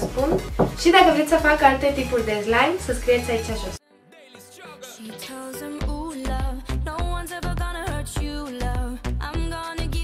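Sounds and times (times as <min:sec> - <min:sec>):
upbeat music with heavy bass beat: 0:05.7 - 0:10.0.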